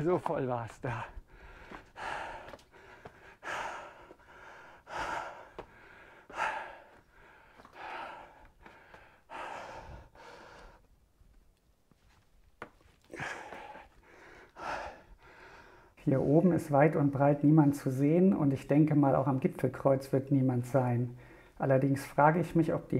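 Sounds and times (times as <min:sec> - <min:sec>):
man breathing hard: 0:00.9 - 0:10.9, 0:13.1 - 0:16.0, 0:21.2 - 0:21.6.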